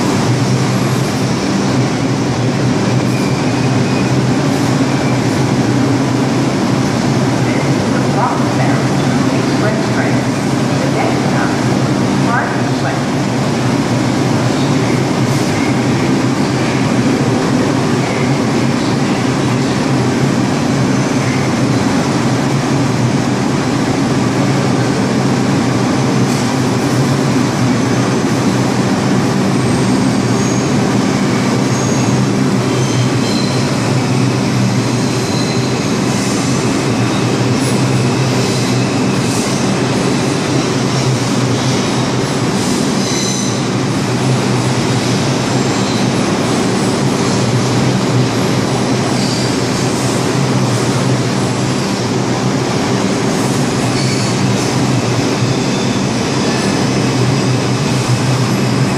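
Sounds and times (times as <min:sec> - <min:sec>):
subway train rumbling: 0:00.0 - 0:58.9
high wheel squeals: 0:32.8 - 0:33.7, 0:34.9 - 0:36.0, 0:43.0 - 0:43.7.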